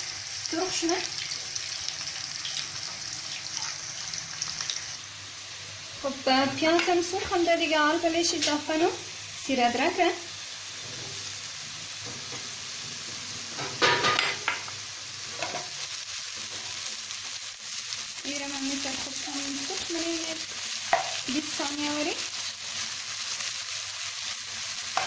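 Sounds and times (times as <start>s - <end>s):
onions sizzling in oil: 0.0s - 25.0s.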